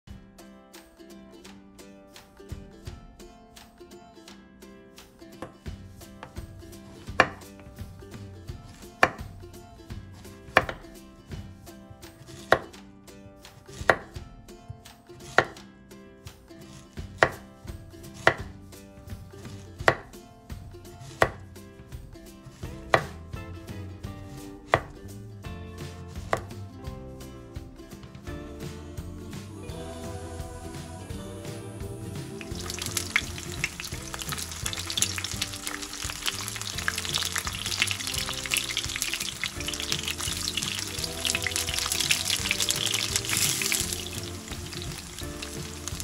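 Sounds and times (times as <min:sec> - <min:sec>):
knife knocking on wooden board: 0:10.6 - 0:10.8, 0:13.9 - 0:14.1.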